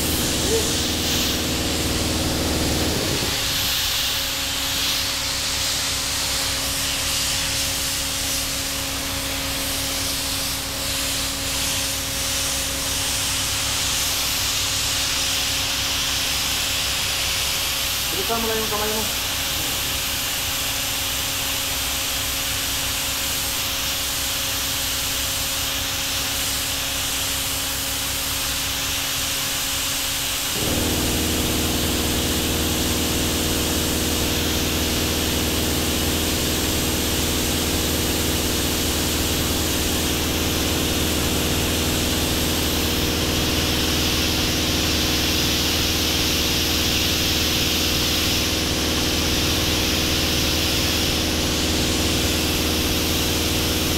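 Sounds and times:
machine motor humming: 0.0 - 3.5, 30.6 - 44.1.

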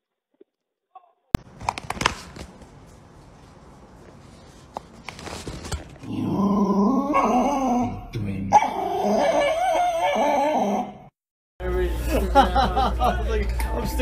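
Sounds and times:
small dog whining: 8.6 - 11.1.

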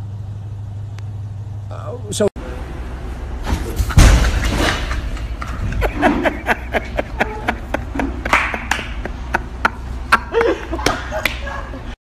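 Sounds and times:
hand claps keeping a beat: 8.2 - 9.0, 10.8 - 11.5.

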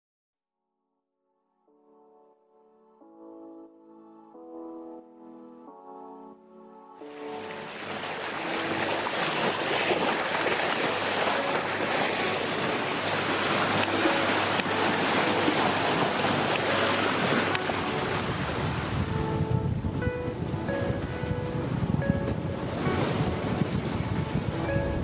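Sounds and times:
sea water splashing along hull: 7.1 - 25.0
wind buffeting microphone: 7.8 - 25.0.

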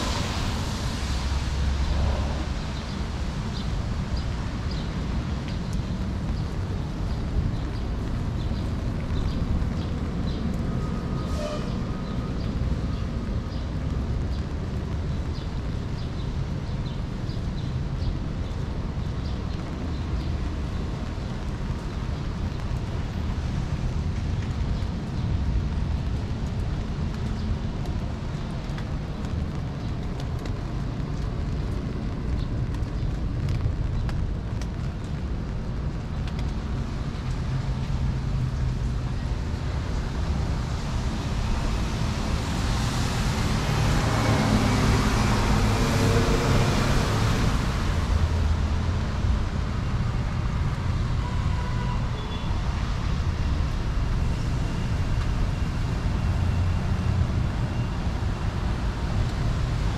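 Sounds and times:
vehicle tyre hiss passing: 0.0 - 3.7
traffic on a wet road: 0.0 - 59.9.

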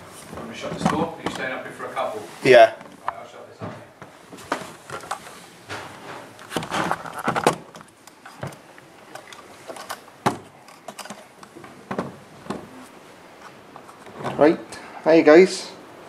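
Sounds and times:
camera handling knocks and rustles: 4.4 - 12.7.

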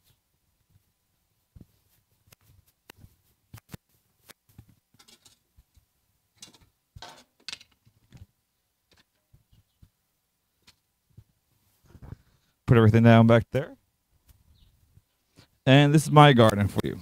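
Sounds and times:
garden tools knocking and clattering: 6.4 - 7.8.

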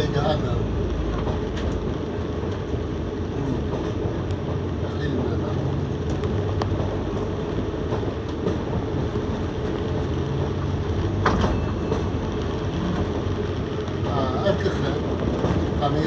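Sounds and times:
bus drivetrain and road drone: 0.0 - 16.0.

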